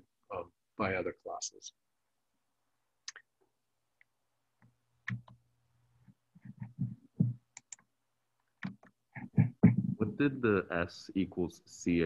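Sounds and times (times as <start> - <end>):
sharp clicks: 7.5 - 7.9.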